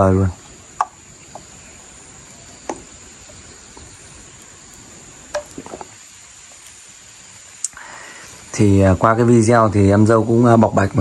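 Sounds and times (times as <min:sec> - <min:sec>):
low hiss: 0:00.0 - 0:11.0.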